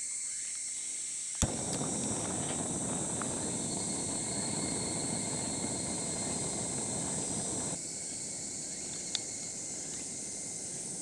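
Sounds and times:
summer insects droning: 0.0 - 11.0
light click: 1.4 - 7.8
gas burner hissing: 1.4 - 11.0.

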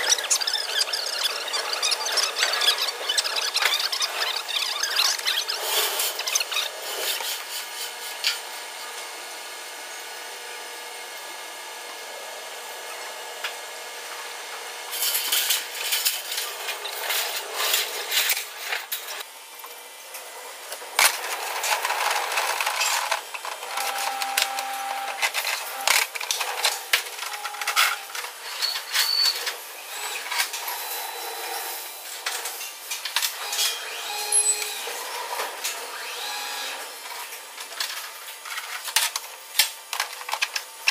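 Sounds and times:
short squeaks: 0.0 - 6.7
steady background hum: 0.0 - 40.9.

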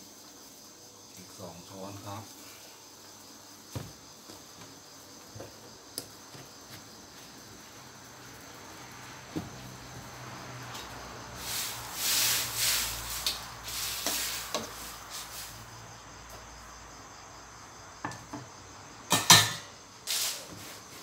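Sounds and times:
crickets chirping: 0.0 - 21.0
sizzling and stirring in wok: 6.9 - 16.9, 17.9 - 21.0
metal pan clanks: 19.1 - 19.7.

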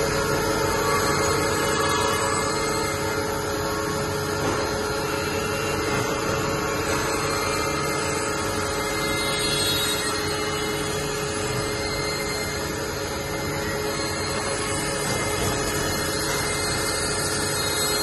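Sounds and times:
cylindrical grinder grinding: 0.0 - 18.0.

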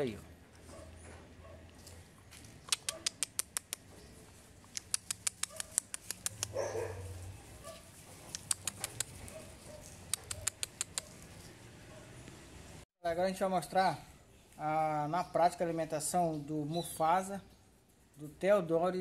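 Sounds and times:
puppy claws clicking on wood: 2.6 - 3.9, 4.6 - 6.6, 8.2 - 11.3.

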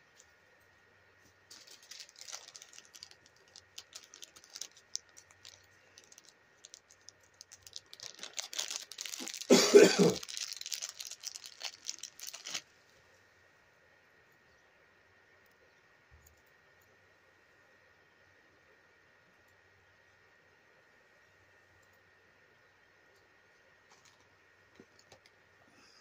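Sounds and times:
hands handling doll clothes: 1.4 - 12.8.

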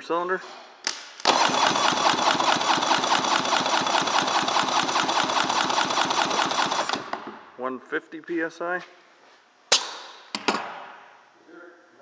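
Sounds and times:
electric starter whine: 1.3 - 7.0.

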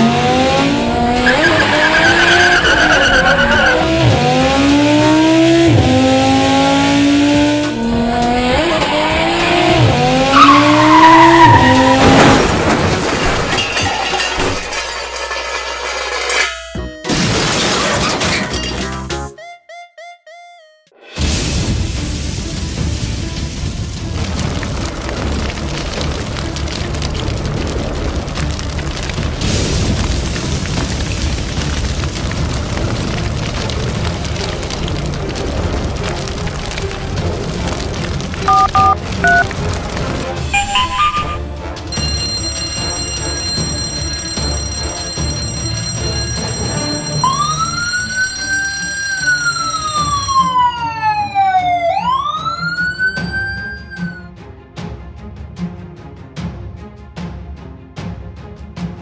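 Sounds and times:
fire engine siren wailing: 0.0 - 12.4, 38.4 - 39.4, 40.5 - 41.4, 45.9 - 54.3
background music: 16.2 - 59.0
rushing fire flare-up: 21.2 - 40.6
crackling flames: 21.2 - 40.8, 41.4 - 53.8.

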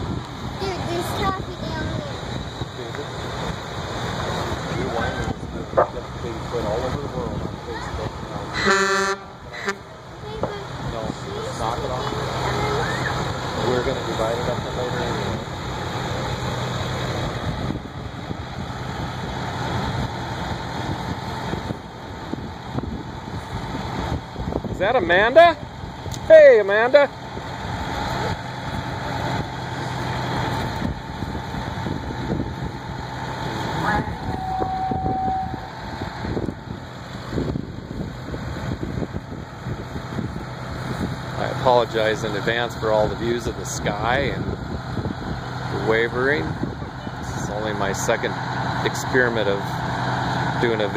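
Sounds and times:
wind buffeting microphone: 0.0 - 8.5, 16.8 - 26.3, 27.2 - 49.2
fire truck engine rumbling: 0.0 - 50.9.

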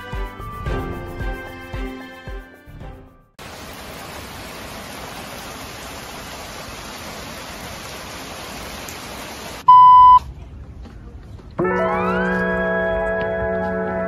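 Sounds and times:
steady rain falling: 3.4 - 9.7
loud steady beep: 9.7 - 10.2.

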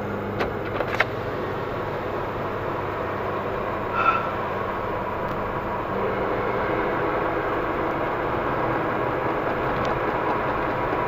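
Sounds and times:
car engine and road noise: 0.0 - 11.0
short squeak: 3.9 - 4.5.

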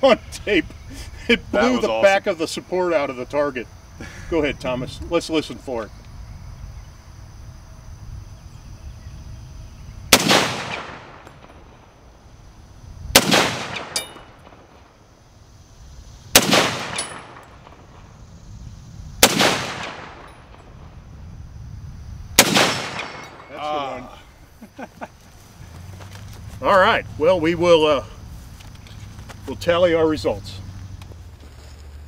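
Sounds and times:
rifle shots with echo: 10.1 - 11.9, 13.1 - 15.0, 16.3 - 18.1, 19.2 - 20.9, 22.4 - 23.6.

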